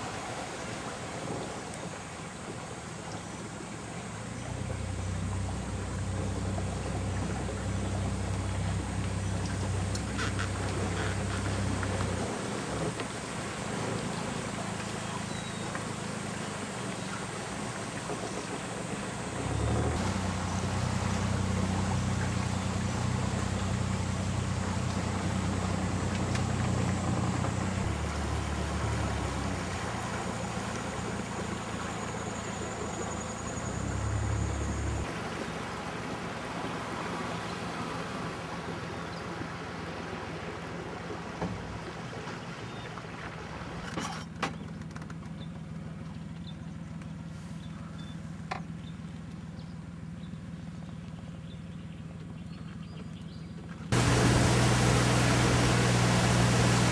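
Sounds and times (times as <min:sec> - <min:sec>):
boat motor whining: 0:03.7 - 0:41.8, 0:53.8 - 0:56.9.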